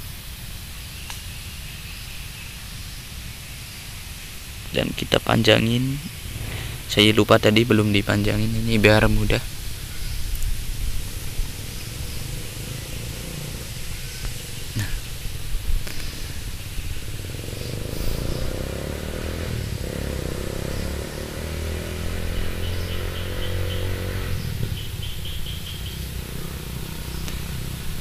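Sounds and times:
low motor rumble: 4.8s - 28.0s
high bird chirps: 20.6s - 26.4s.

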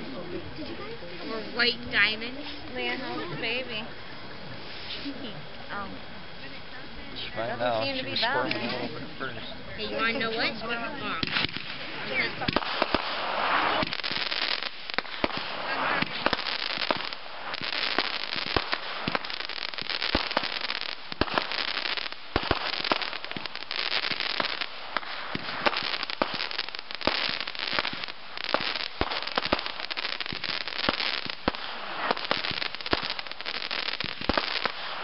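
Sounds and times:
fireworks crackling: 0.0s - 35.0s
firework bangs: 10.0s - 35.0s.

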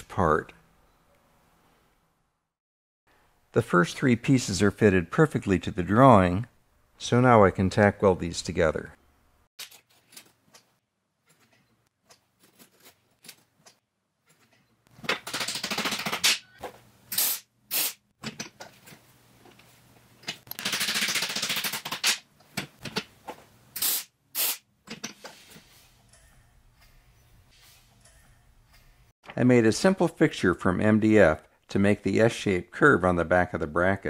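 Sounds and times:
welding arc crackling: 23.8s - 24.6s.

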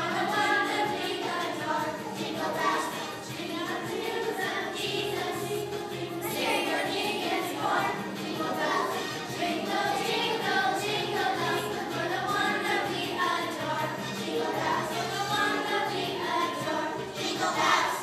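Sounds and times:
children's choir singing: 0.0s - 18.0s.

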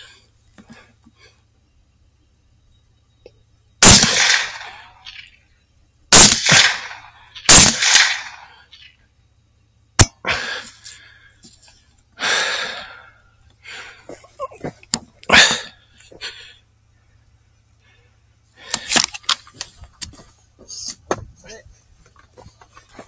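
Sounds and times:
rifle shots: 3.8s - 5.3s, 6.1s - 8.9s.

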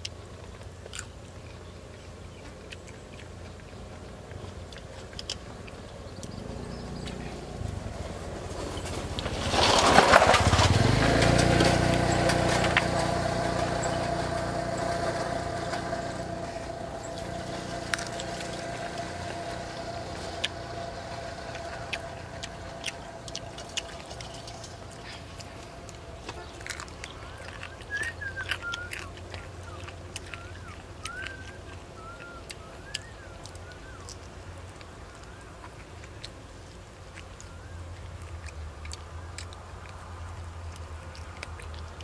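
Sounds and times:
bone crunching and chewing: 0.0s - 7.9s, 8.6s - 42.0s
small engine running: 6.2s - 34.1s.

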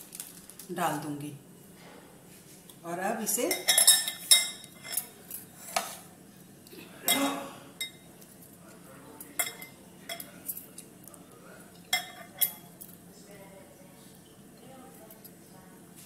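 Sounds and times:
glass dish and plate clinking: 3.5s - 5.2s, 9.3s - 10.4s, 11.9s - 12.7s.

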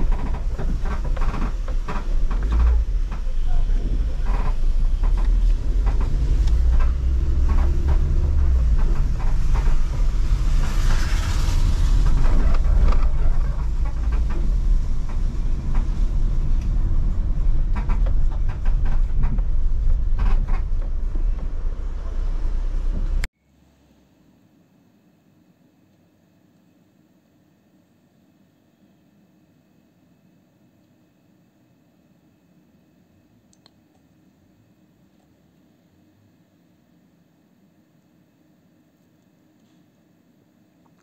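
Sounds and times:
small rattles and clicks: 0.0s - 11.0s, 12.0s - 21.5s
car engine and road rumble: 0.0s - 23.3s.

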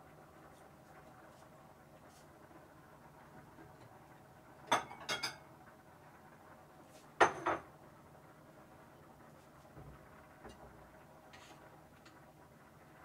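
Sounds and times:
dishes and utensils clinking: 4.7s - 5.4s.

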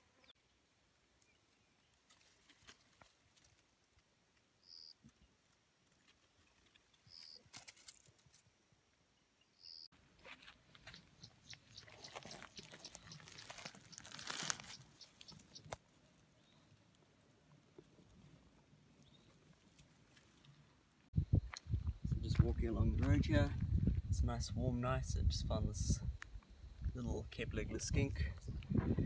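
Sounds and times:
dry grass rustling and crunching: 1.2s - 8.6s, 10.0s - 24.1s.

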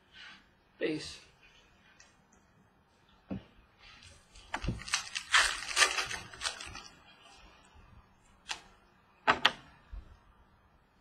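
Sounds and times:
wrapper crinkling and tearing: 4.3s - 7.0s.

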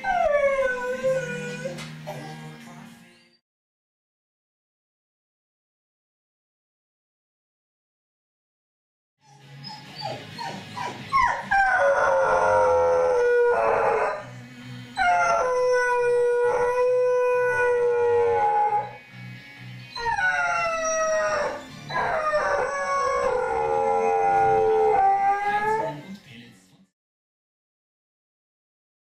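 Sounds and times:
dog howling: 0.0s - 2.4s, 9.6s - 14.2s, 15.0s - 19.0s, 19.9s - 26.0s.

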